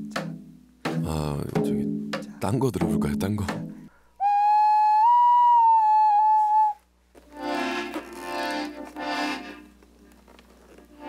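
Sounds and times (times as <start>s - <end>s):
accordion chords: 7.2s - 9.8s.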